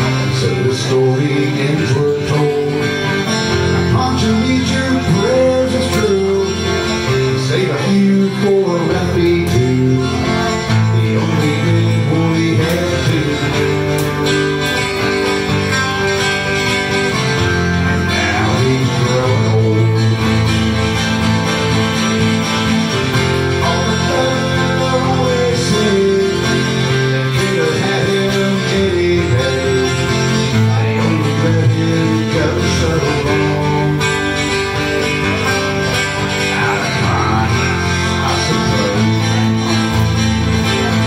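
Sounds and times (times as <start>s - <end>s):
twelve-string guitar strumming: 0.0s - 41.0s.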